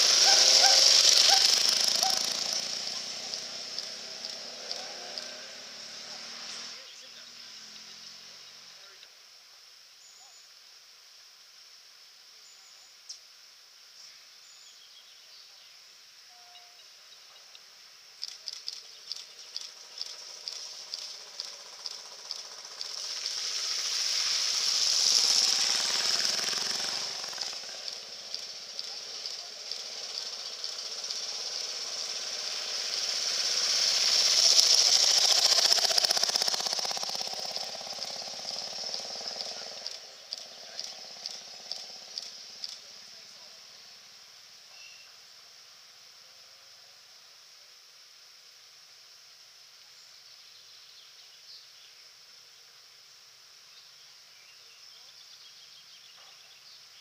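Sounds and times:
motorcycle engine ticking: 0.0s - 6.6s, 18.2s - 43.0s
motorcycle splashing through water: 0.0s - 8.3s, 19.1s - 42.9s.

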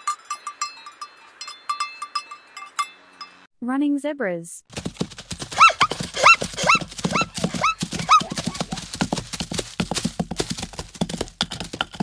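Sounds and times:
hoofbeats of galloping herd: 4.7s - 12.0s
short yelping barking calls: 5.5s - 8.7s.

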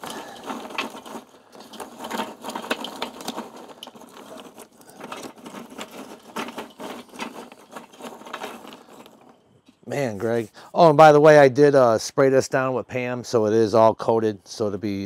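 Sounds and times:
charcoal clinking and rattling: 0.0s - 10.4s.

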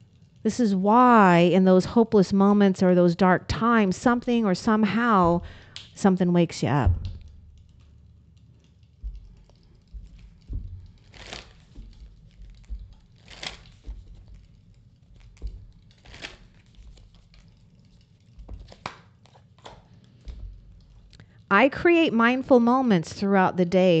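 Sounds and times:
cards shuffling swishes: 11.0s - 11.8s, 13.2s - 14.1s, 15.4s - 17.3s.

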